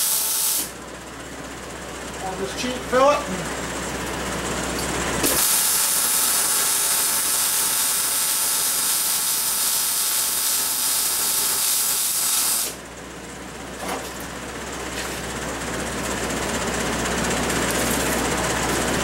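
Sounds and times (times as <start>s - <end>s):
hissing welding arc: 0.0s - 0.8s, 5.2s - 12.8s.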